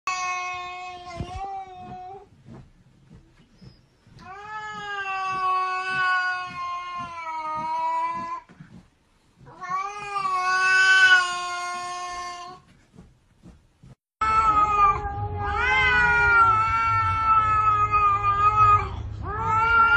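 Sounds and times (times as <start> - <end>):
cat yowling: 14.2 - 19.9.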